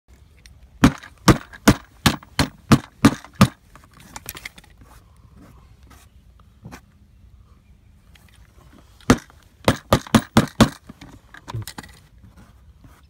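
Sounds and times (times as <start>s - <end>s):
sharp knocks: 0.8s - 3.6s, 9.1s - 11.0s.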